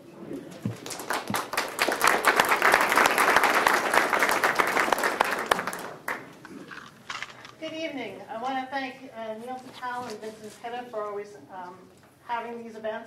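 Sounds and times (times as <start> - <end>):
audience applauding: 0.6 - 6.3.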